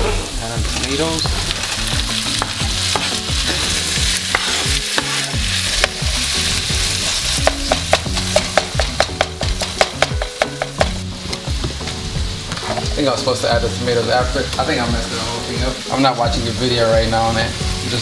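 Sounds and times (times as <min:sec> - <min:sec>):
vegetables sizzling in a frying pan: 0:00.0 - 0:18.0
spatula tapping against pan: 0:07.4 - 0:11.8.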